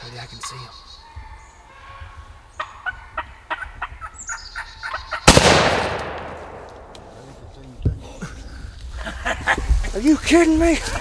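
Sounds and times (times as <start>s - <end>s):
turkey gobbling: 0.4s - 5.3s
shotgun shot echoing: 5.3s - 7.3s.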